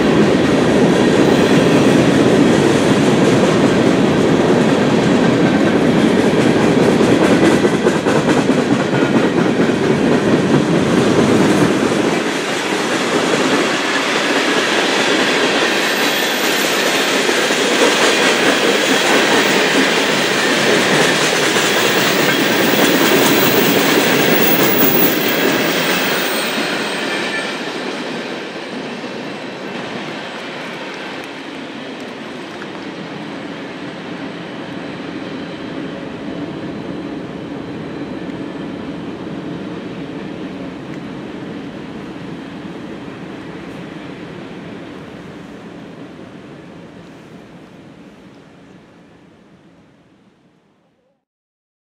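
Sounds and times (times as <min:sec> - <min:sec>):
freight train cars rolling past: 0:00.0 - 0:49.6.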